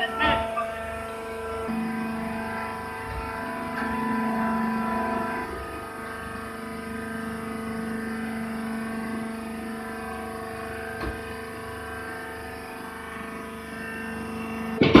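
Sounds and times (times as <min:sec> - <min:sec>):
hydraulic power unit humming: 0:00.0 - 0:15.0
loud clatter: 0:14.8 - 0:15.0.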